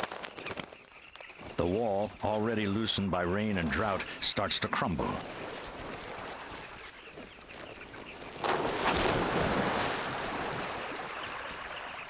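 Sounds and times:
sandy riverbank crumbling: 0:00.0 - 0:12.0
heavy splash into river: 0:08.4 - 0:11.1.

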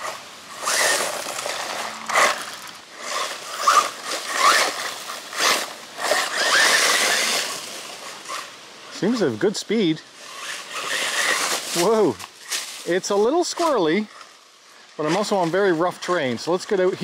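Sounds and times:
electric motor whining: 0:00.0 - 0:09.2, 0:10.2 - 0:12.2
tyres scrabbling on dirt: 0:00.0 - 0:14.3, 0:15.0 - 0:17.0.

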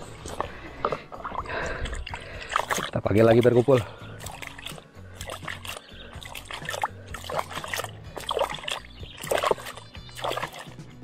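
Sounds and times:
water splashing into river: 0:02.0 - 0:03.0, 0:03.7 - 0:10.9.

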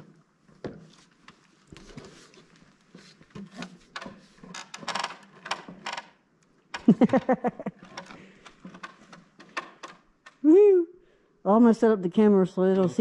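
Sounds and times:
ladder creak: 0:03.0 - 0:06.2, 0:06.8 - 0:10.4.

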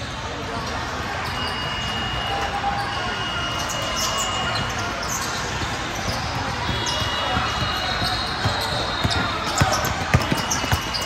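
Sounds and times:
shoe squeaks: 0:00.0 - 0:11.0
basketball bouncing on court: 0:04.5 - 0:11.0.

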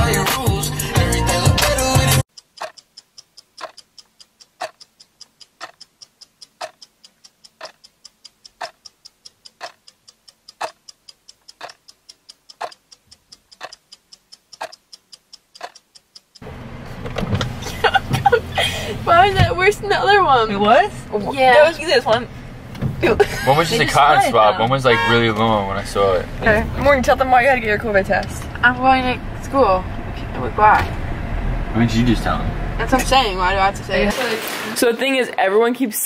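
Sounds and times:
clock ticking: 0:02.3 - 0:16.5
car cabin rumble: 0:16.4 - 0:34.1
voices: 0:17.7 - 0:22.4, 0:23.0 - 0:30.9, 0:31.8 - 0:36.0.

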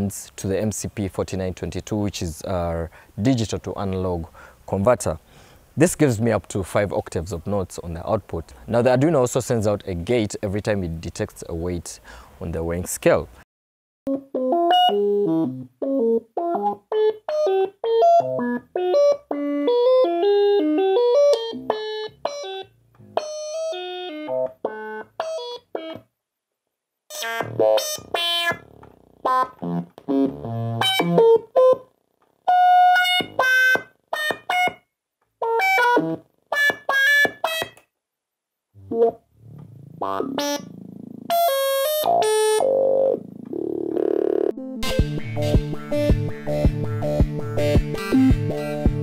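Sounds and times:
synthesizer melody of short notes: 0:40.0 - 0:49.0.

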